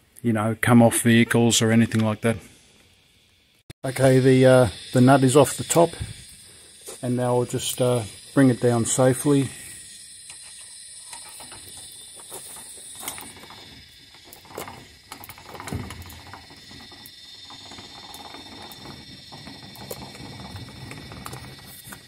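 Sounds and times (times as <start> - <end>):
high-pitched whine: 1.0 - 22.0
suspension creaks and knocks: 11.2 - 22.0.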